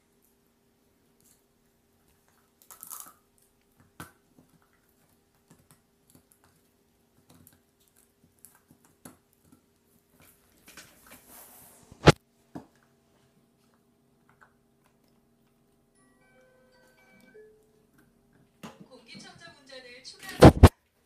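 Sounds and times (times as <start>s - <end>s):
dog gnawing a bone: 3.3s - 10.2s.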